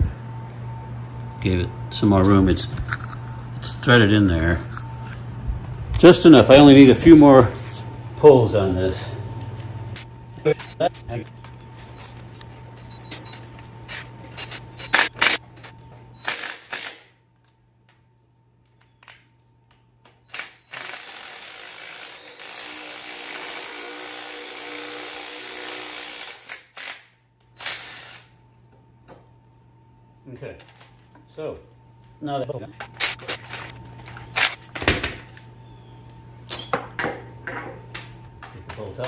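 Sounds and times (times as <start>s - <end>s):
cordless drill running: 20.3s - 27.0s.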